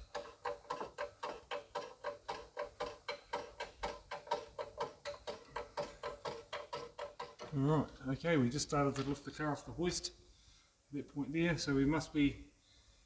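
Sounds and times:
jack clicking: 0.0s - 7.6s.

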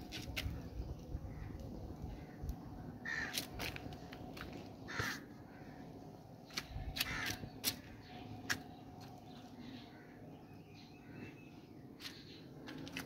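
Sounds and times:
burning plastic crackling: 3.2s - 4.8s
bird calling: 6.5s - 13.0s.

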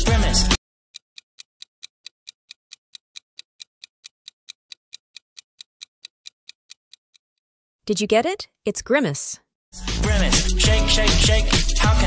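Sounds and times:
clock ticking quickly: 1.0s - 7.2s.

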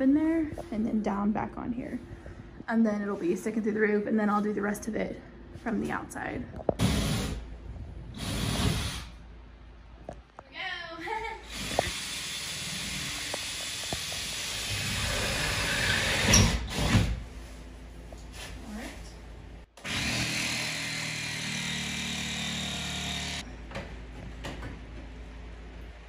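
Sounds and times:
power tool cutting roof sheathing: 11.5s - 17.2s, 19.8s - 23.4s.

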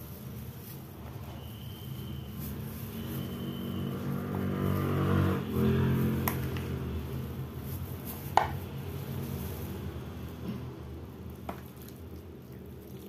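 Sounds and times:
engine running: 2.0s - 11.3s.

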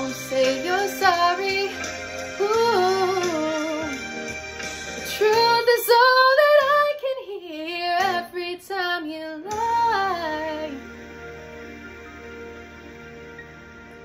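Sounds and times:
woman singing wordless vocal runs: 0.0s - 4.0s
soft backing track of chords: 0.0s - 14.0s.

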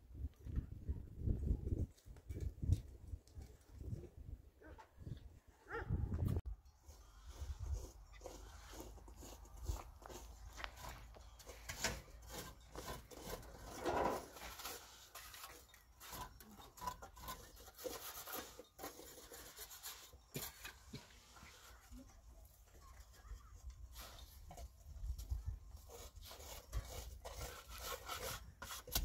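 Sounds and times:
rubbing and scraping: 6.3s - 29.0s.

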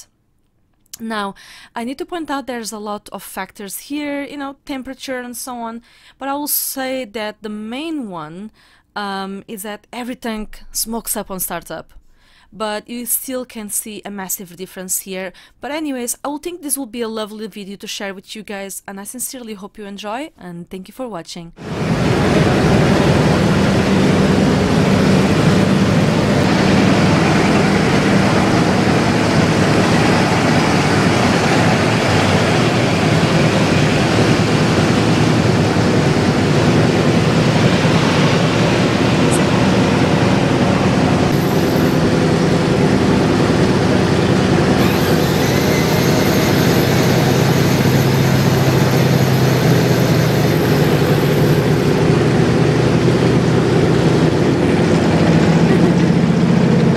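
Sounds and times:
radial engine running loudly: 21.6s - 56.9s.

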